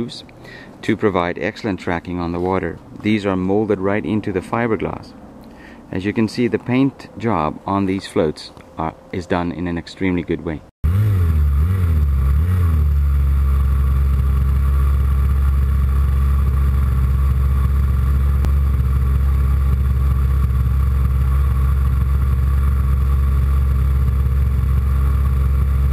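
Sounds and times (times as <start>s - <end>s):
model plane engine running: 10.8s - 25.9s.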